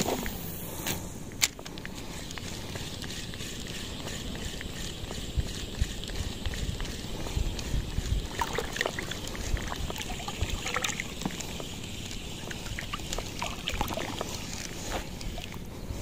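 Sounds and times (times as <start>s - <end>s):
wind rumble on microphone: 4.9s - 11.3s
seawater sloshing and splashing: 8.2s - 15.7s.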